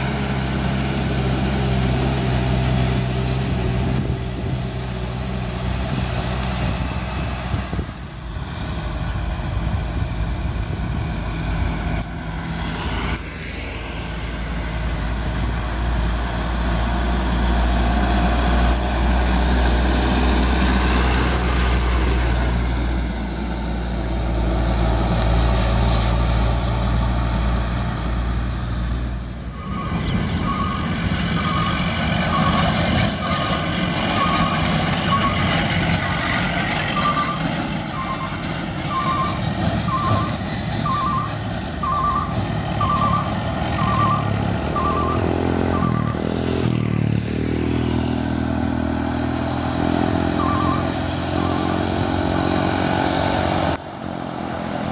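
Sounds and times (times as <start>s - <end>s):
diesel truck engines running: 0.0s - 54.9s
truck reversing alarm beeps: 29.4s - 46.8s, 50.0s - 52.0s.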